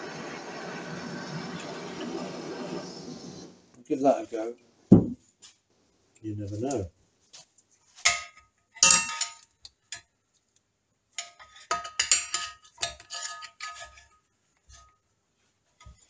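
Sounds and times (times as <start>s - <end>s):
screwdrivers scraping metal: 11.2s - 14.1s.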